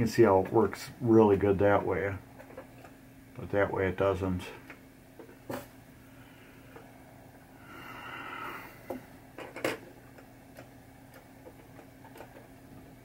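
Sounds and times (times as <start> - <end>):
steady low hum: 0.0 - 13.0
breathy exhale: 6.1 - 6.8, 7.5 - 9.1
small clicks and taps: 8.9 - 12.9.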